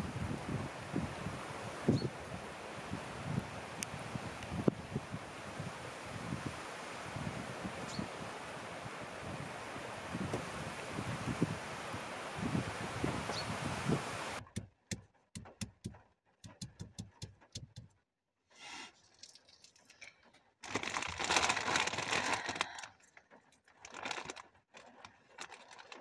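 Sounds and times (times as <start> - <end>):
wind on microphone: 0.0 - 14.4
plastic zip bag crinkling: 20.6 - 23.0, 23.6 - 26.0.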